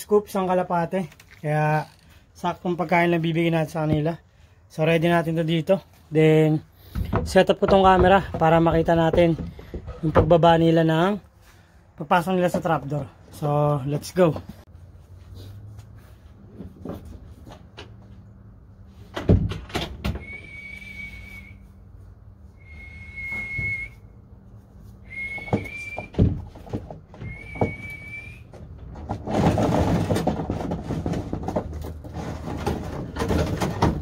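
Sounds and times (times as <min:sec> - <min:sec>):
long whistle notes: 0:20.2 - 0:21.8, 0:22.6 - 0:24.1, 0:25.0 - 0:26.2, 0:27.2 - 0:28.5.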